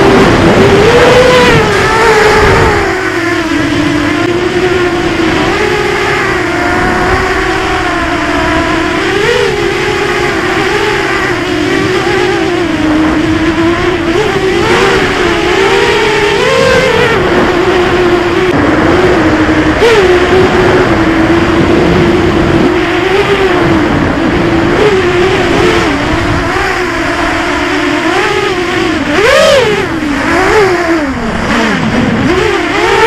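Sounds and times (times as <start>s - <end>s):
low rushing noise: 0.0s - 32.8s
quadcopter motors whining: 0.0s - 33.0s.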